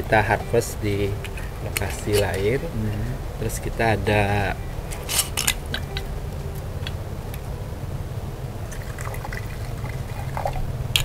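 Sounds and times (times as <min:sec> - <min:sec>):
low background rumble: 0:00.0 - 0:11.0
wine pouring into a glass: 0:08.7 - 0:10.7.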